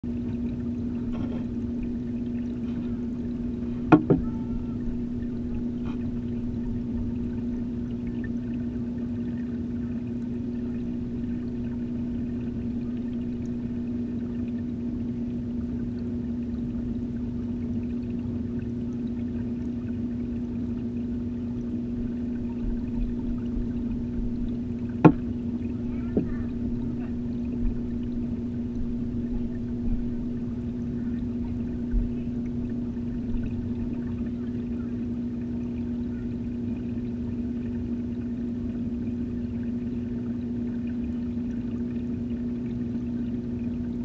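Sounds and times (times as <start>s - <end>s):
aquarium filter pump humming: 0.0s - 44.0s
sharp knocks: 3.9s - 4.3s, 25.0s - 25.3s.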